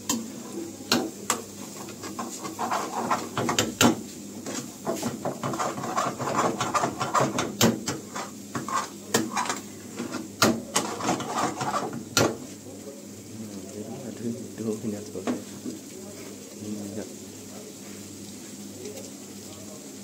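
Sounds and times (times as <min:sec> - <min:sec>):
gravy simmering sizzle: 0:00.0 - 0:20.0
ladle scraping metal pan: 0:01.6 - 0:12.4.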